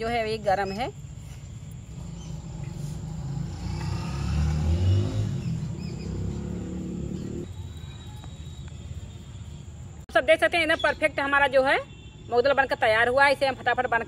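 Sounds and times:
vehicle engine passing by: 0:01.9 - 0:07.5.

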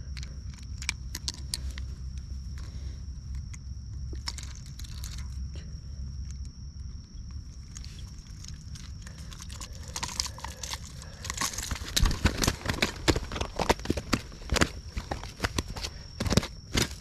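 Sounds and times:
rustling: 0:07.3 - 0:17.0.

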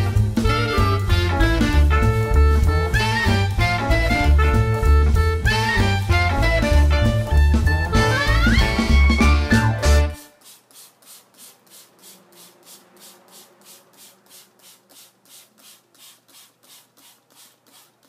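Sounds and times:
spray bottle squirts: 0:10.1 - 0:18.0.

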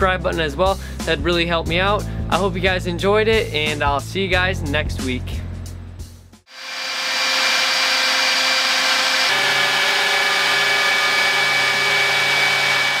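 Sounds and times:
leaf blower running with whine: 0:06.5 - 0:13.0.

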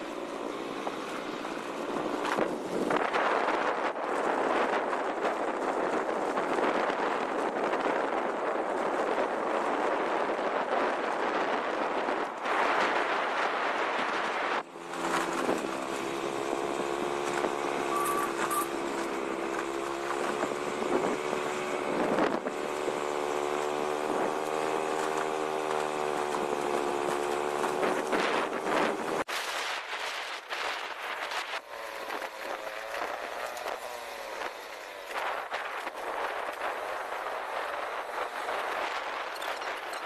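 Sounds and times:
wind rushing over microphone: 0:00.0 - 0:40.0
vehicle engine running: 0:08.7 - 0:29.3, 0:30.9 - 0:40.0.

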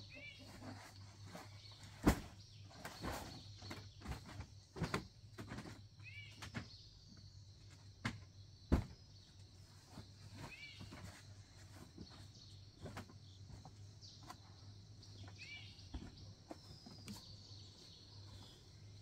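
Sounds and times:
knocks and thumps: 0:00.6 - 0:06.8, 0:07.7 - 0:09.1.

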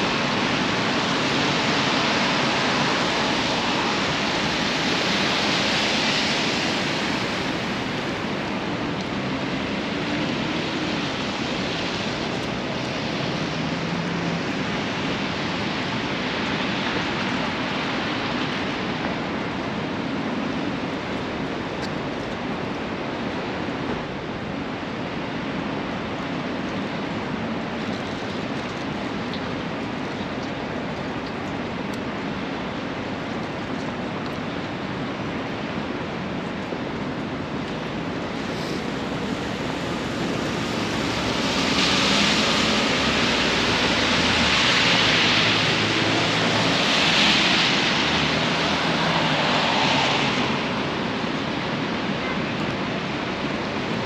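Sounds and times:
traffic on wet streets: 0:00.0 - 0:54.0
rain hissing: 0:37.4 - 0:52.1.

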